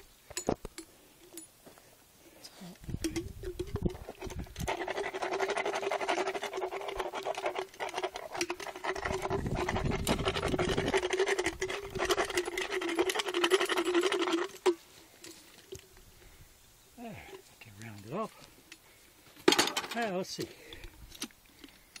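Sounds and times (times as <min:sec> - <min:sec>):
rasp filing teeth: 0:04.4 - 0:14.4.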